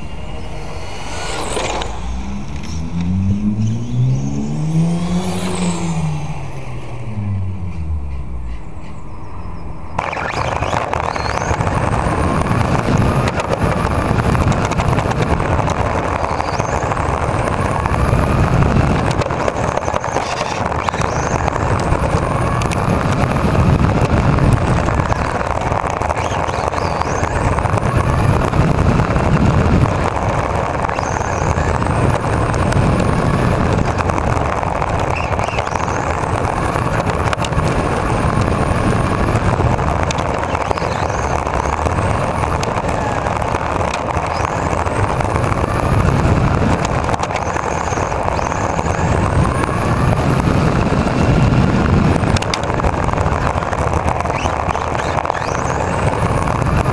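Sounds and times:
electric motor whining: 0:00.0 - 0:06.8
tyres rolling over paving: 0:10.4 - 0:56.9.

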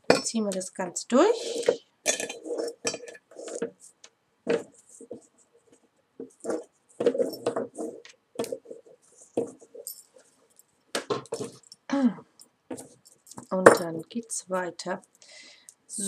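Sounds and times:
cord rustling and scraping: 0:01.2 - 0:11.9, 0:12.7 - 0:13.6.

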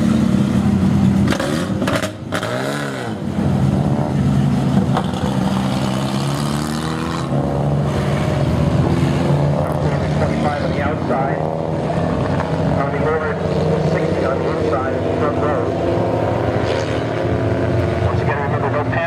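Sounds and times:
stock car engines passing: 0:00.0 - 0:19.0.

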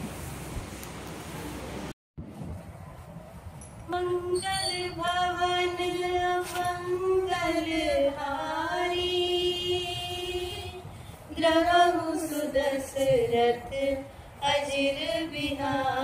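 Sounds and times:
woman singing slow melody: 0:03.9 - 0:16.0.

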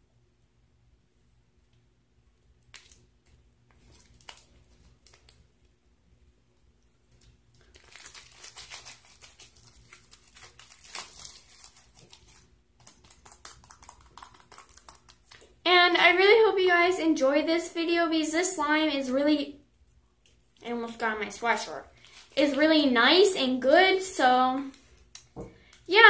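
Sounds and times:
slime crackling and popping: 0:07.6 - 0:15.6.

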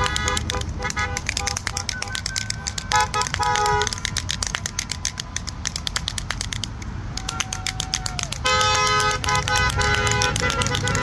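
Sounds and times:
car horns honking: 0:00.0 - 0:04.0, 0:08.4 - 0:11.0
fast steady clicking rattle: 0:00.0 - 0:11.0.

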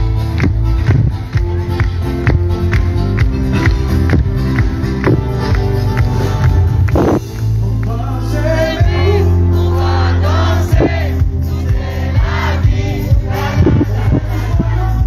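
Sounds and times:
bass line: 0:00.0 - 0:15.0
voices singing together: 0:07.7 - 0:15.0.

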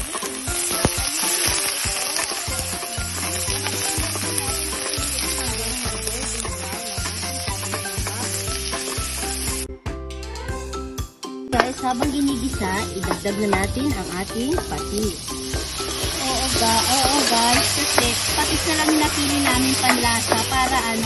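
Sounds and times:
meat sizzling in hot oil: 0:00.0 - 0:09.7, 0:11.7 - 0:21.0
wooden spatula stirring in pot: 0:15.4 - 0:21.0.

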